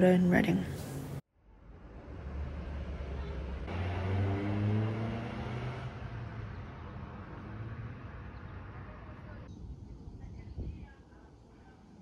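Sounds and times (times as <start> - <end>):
car engine speeding up: 1.6 - 9.5.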